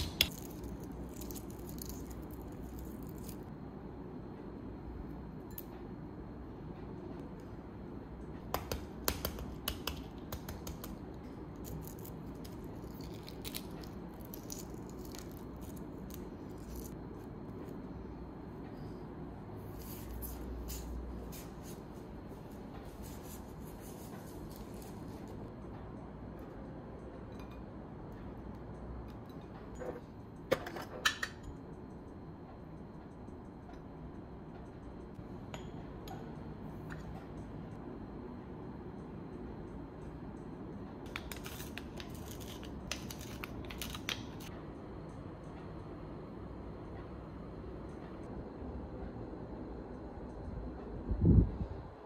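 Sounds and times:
faint room hum: 0:00.0 - 0:52.0
eggshell cracking: 0:11.6 - 0:17.0.

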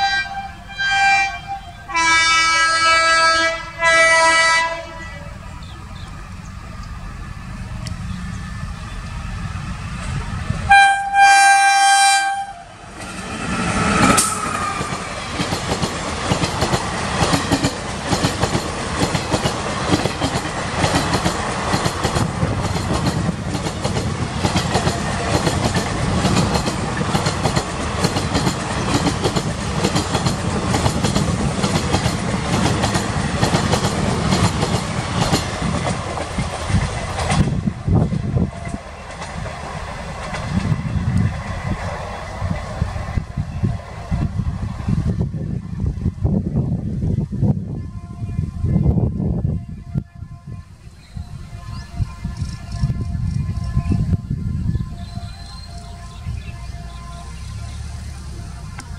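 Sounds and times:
locomotive horn blast: 0:00.0 - 0:05.9, 0:10.6 - 0:12.9, 0:47.7 - 0:58.9
train wheels clattering over rail joints: 0:12.9 - 0:42.9.

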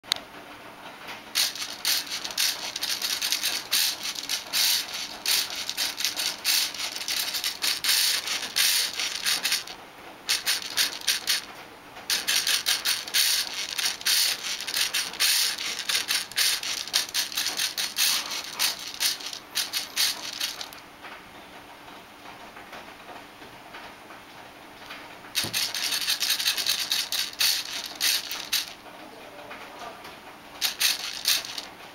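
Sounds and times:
rapid rattling and clicking: 0:01.2 - 0:20.8, 0:24.8 - 0:29.0, 0:30.6 - 0:31.9.

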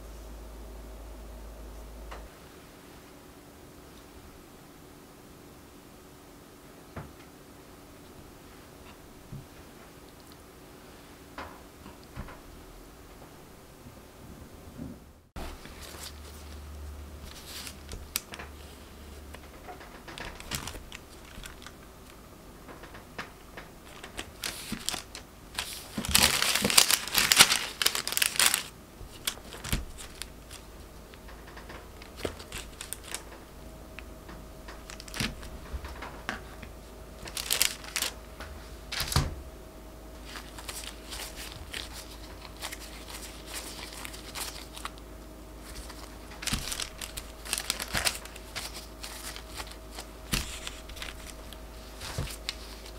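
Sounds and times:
parchment paper crinkling: 0:15.4 - 0:35.7, 0:37.2 - 0:38.2, 0:40.2 - 0:52.9.

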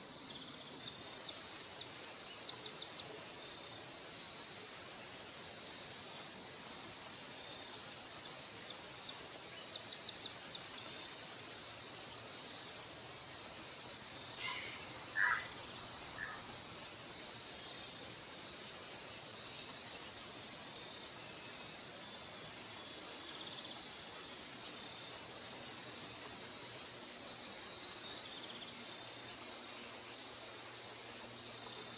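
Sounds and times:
steady hiss: 0:00.0 - 0:31.9
high-pitched insect-like chirp: 0:07.4 - 0:31.9.

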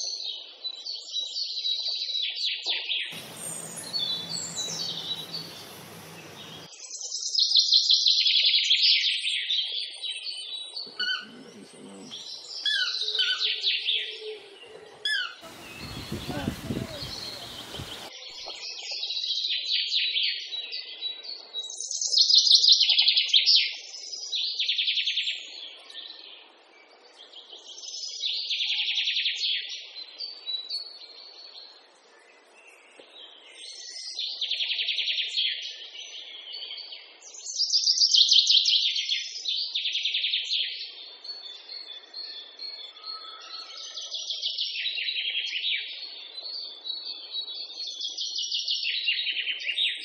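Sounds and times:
songbird chirping and trilling: 0:00.8 - 0:07.6, 0:08.9 - 0:22.4, 0:38.9 - 0:50.0.

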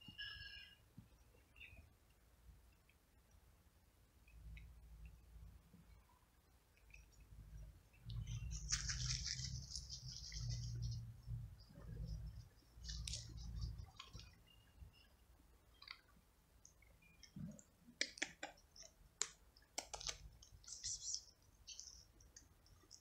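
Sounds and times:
sharp clicks and crackles: 0:15.8 - 0:21.1.

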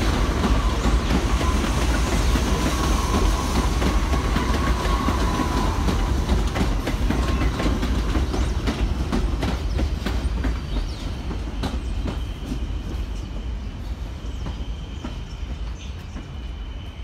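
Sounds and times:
train wheels clacking over rail joints: 0:00.0 - 0:13.2
low train rumble: 0:00.0 - 0:17.0.

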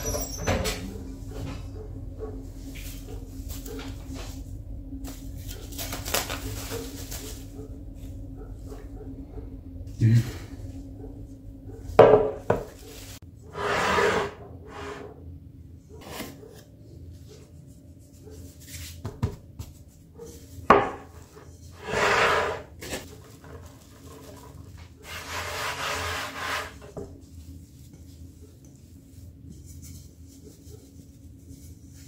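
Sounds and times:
hands rubbing dough on board: 0:17.2 - 0:20.5, 0:25.0 - 0:32.0.

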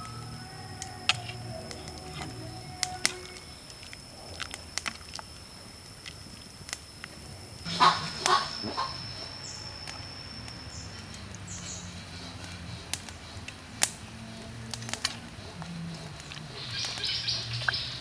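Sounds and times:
high steady tone: 0:00.0 - 0:04.4, 0:05.4 - 0:12.9
faint bird chirps: 0:07.6 - 0:18.0.

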